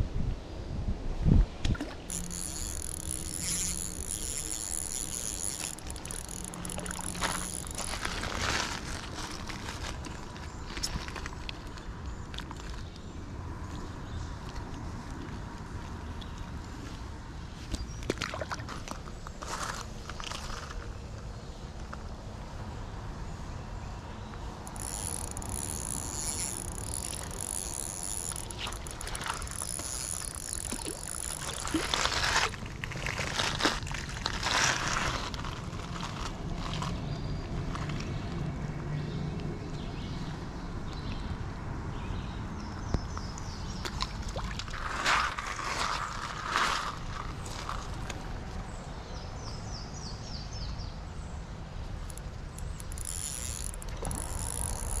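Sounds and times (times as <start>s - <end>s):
fish splashing: 1.7s - 11.0s, 24.7s - 36.0s
spinning reel whine: 2.1s - 8.3s, 24.6s - 32.2s, 52.1s - 55.0s
high insect buzz: 2.1s - 9.1s, 24.6s - 32.5s, 52.1s - 55.0s.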